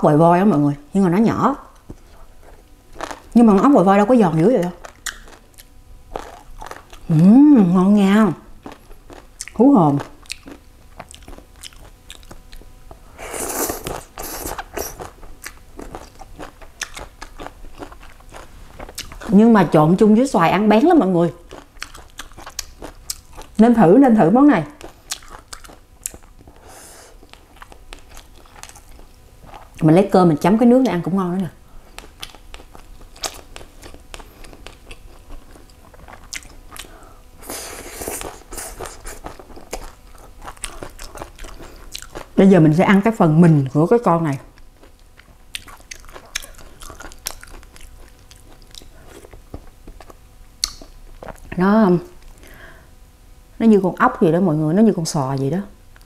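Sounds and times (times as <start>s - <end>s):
crunchy chewing: 1.7s - 3.7s, 4.8s - 7.1s, 8.6s - 19.4s, 21.4s - 23.6s, 24.7s - 29.9s, 31.7s - 42.4s, 44.5s - 51.6s
slurping: 13.2s - 15.1s.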